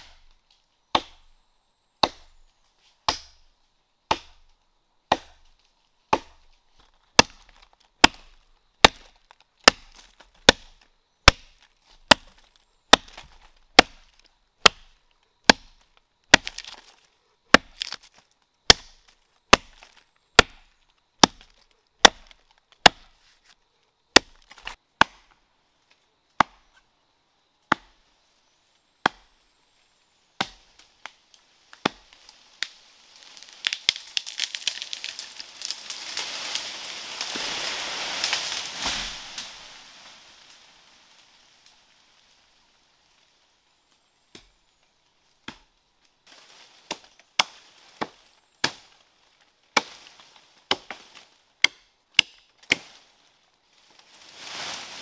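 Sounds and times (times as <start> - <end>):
axe chopping wood: 0.0 - 0.3, 0.9 - 1.3, 2.0 - 2.4, 3.0 - 3.4, 4.1 - 4.5, 5.1 - 5.5, 6.1 - 6.5, 7.2 - 16.9, 17.5 - 23.2, 24.1 - 25.4, 26.4 - 26.8, 27.7 - 28.0, 29.0 - 29.3, 30.4 - 32.0, 44.3 - 44.6, 45.4 - 45.7, 46.8 - 48.9, 50.7 - 53.0.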